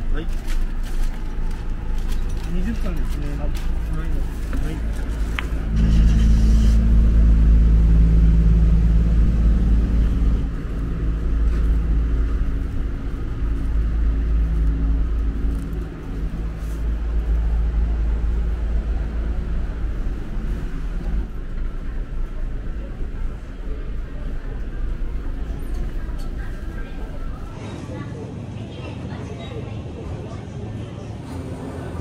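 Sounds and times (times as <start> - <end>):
large vehicle engine idling: 0.0 - 27.6.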